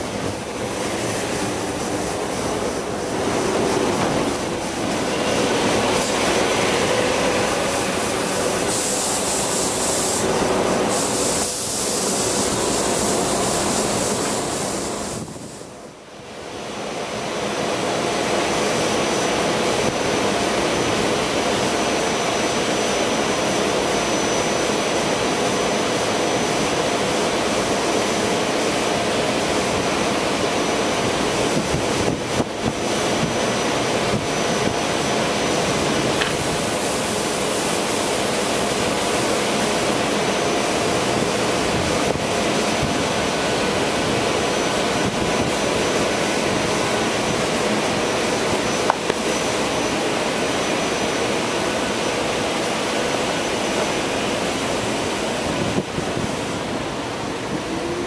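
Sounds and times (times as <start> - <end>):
high hiss: 0.0 - 58.0
railcar equipment humming: 0.0 - 58.0.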